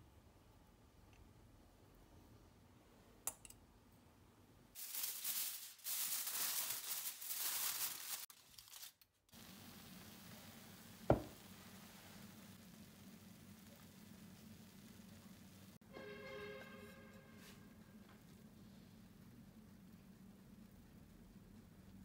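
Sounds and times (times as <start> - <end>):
aluminium foil crinkling: 4.8 - 9.8.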